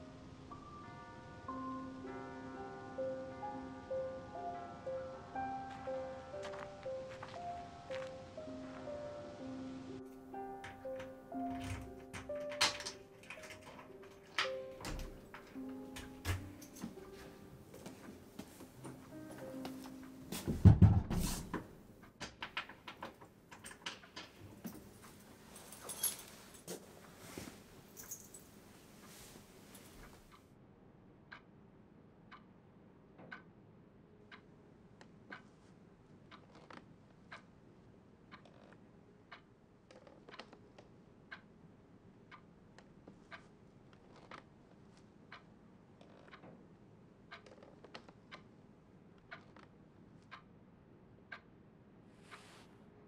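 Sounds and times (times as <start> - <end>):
light clicks and rustles: 22.1 - 30.4
clock ticking: 32.3 - 32.5, 33.2 - 33.5, 37.3 - 37.5, 39.3 - 40.6, 41.2 - 41.5, 45.3 - 46.4, 47.3 - 48.5, 49.2 - 49.6, 50.2 - 50.5.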